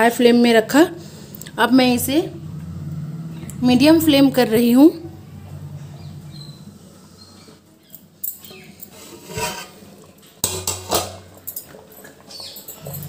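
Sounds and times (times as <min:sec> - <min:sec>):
rice boiling: 0:08.9 - 0:12.6
metal pot lid clinking: 0:10.4 - 0:13.0.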